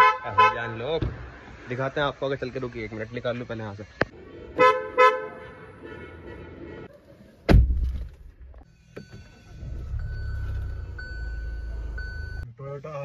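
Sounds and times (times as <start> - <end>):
dashboard beep: 9.0 - 12.4.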